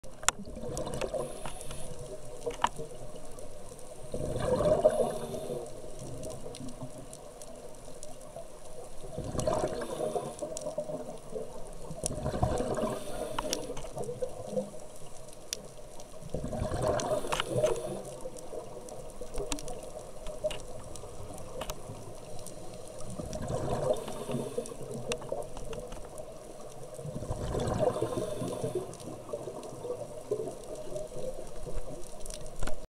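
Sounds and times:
diver bubbly exhalations: 4.1 - 5.6, 9.2 - 10.4, 12.1 - 13.7, 16.4 - 18.0, 23.2 - 24.6, 27.1 - 28.9.

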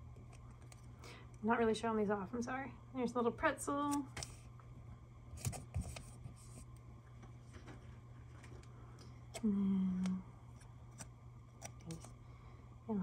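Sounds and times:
person humming: 9.4 - 10.3.

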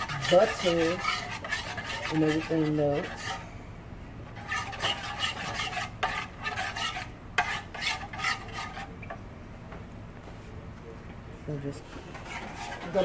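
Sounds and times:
metal spoon scraping a pan: 0.0 - 3.4, 4.4 - 9.2, 11.9 - 13.0.

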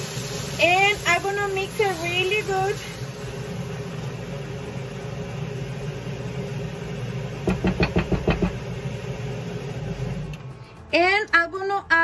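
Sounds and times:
range hood fan humming: 0.0 - 11.8
spoon knocking against pan: 7.4 - 8.6.

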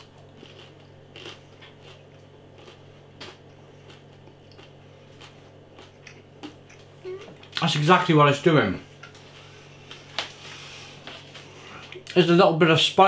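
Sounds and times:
person chewing crispy food: 0.0 - 7.7
low hum: 0.0 - 12.2.

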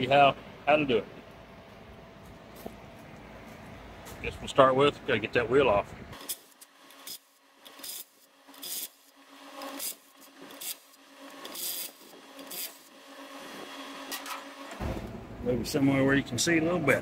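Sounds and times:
impact wrench rasping bursts: 6.2 - 14.8.

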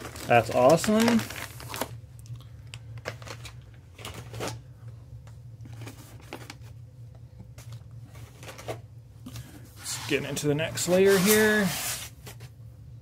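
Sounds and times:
plastic bags crinkling: 0.0 - 2.0, 2.7 - 4.5.

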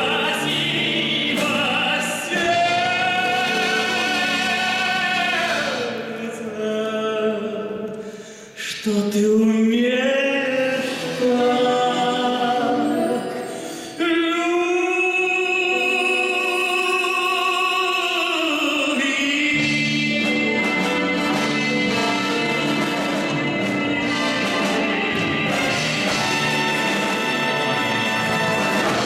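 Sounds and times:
string orchestra: 0.0 - 6.5, 19.5 - 29.0
man singing: 0.0 - 29.0.

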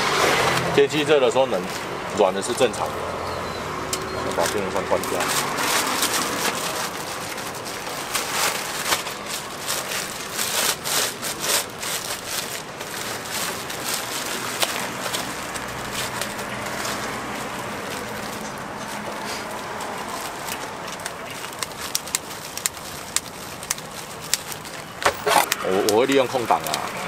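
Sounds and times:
plastic bag crinkling: 4.2 - 27.0.

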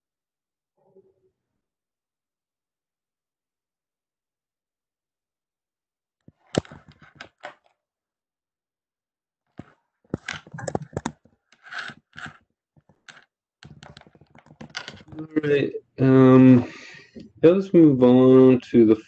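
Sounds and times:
keyboard typing: 9.6 - 15.4.

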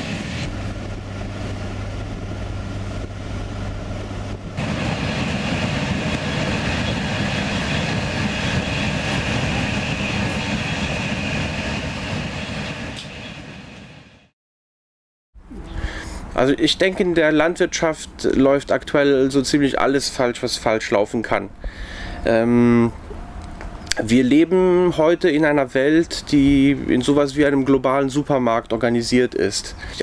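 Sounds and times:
train wheels rumbling on rails: 0.0 - 14.3.

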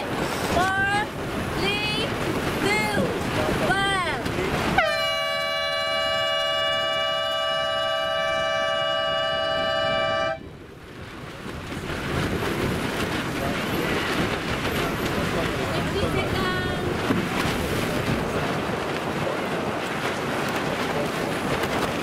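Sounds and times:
water: 0.0 - 22.0
wind noise on microphone: 0.0 - 22.0
long air horn blast: 4.8 - 10.6.

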